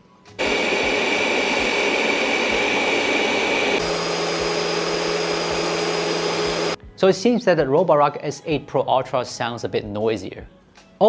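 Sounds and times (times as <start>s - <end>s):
robot vacuum whirring: 0.4s - 6.8s.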